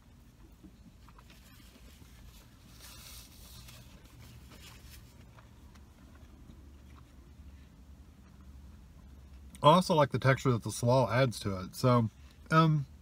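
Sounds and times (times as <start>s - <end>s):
low steady hum: 0.0s - 13.0s
faint chewing crispy food: 0.3s - 9.6s.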